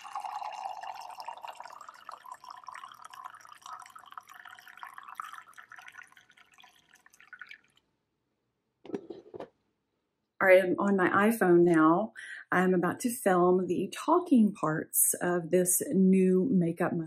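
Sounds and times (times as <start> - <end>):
coffee pouring into mug: 0.0 - 7.8.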